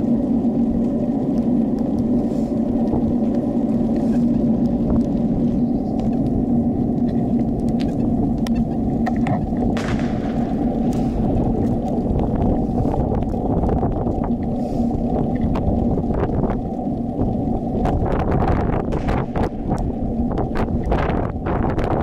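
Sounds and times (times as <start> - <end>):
stroller rolling: 0.0 - 22.0
wind on microphone: 0.0 - 22.0
distant firecrackers popping: 9.7 - 12.3, 18.8 - 21.8.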